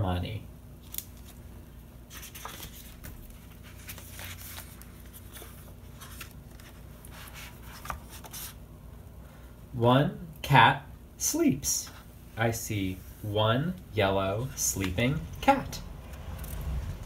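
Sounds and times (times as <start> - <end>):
low steady hum: 0.0 - 17.0
paper pages rustling: 0.8 - 8.6.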